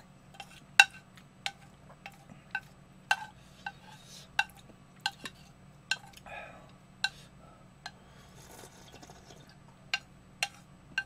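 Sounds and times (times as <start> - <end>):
chopsticks tapping a bowl: 0.4 - 3.8, 4.4 - 6.2, 9.9 - 11.0.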